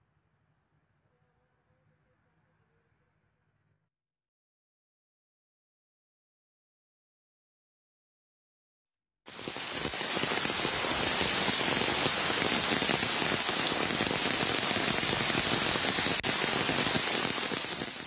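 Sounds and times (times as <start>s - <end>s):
steady rain falling: 9.3s - 18.0s.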